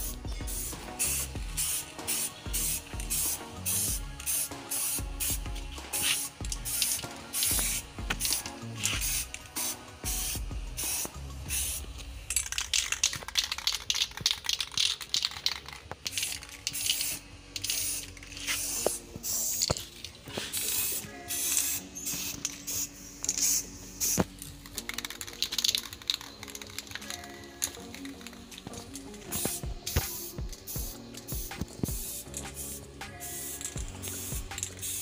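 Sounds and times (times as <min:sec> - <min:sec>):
aerosol can spraying bursts: 0:00.0 - 0:35.0.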